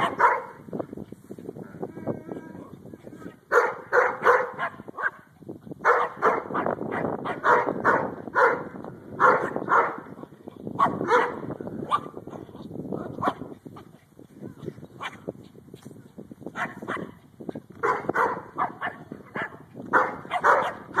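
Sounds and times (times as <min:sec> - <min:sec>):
small dog barking: 0:00.0 - 0:00.6, 0:03.5 - 0:05.2, 0:05.8 - 0:10.0, 0:10.8 - 0:12.5, 0:15.0 - 0:15.2, 0:16.6 - 0:17.2, 0:17.8 - 0:21.0.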